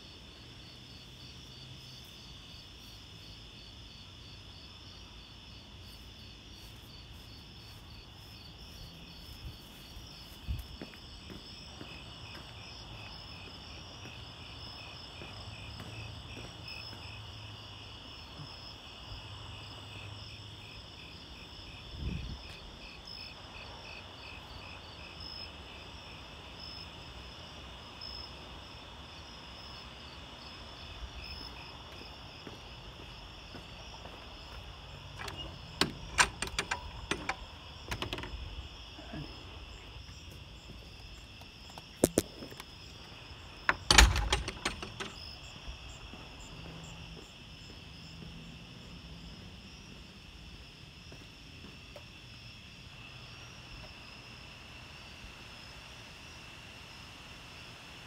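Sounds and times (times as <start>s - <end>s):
crickets chirping: 0.0s - 58.0s
sharp clicks: 35.2s - 38.4s, 43.7s - 45.2s.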